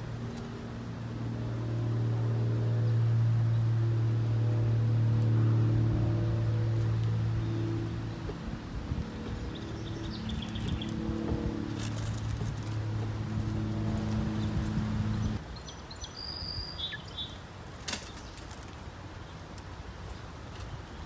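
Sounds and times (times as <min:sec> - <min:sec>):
low engine hum: 0:00.0 - 0:15.6
outdoor background noise: 0:00.0 - 0:21.0.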